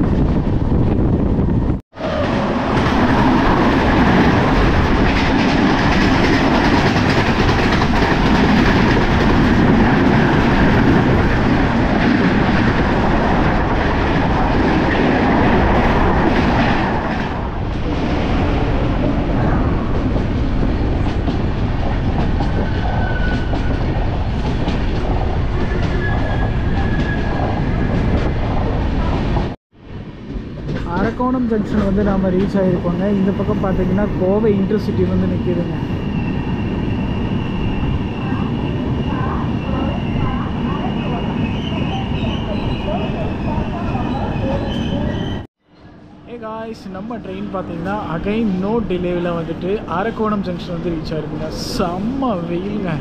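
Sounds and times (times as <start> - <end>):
train rumbling on rails: 0.0 - 53.0
wheels clickety-clack: 2.7 - 12.8.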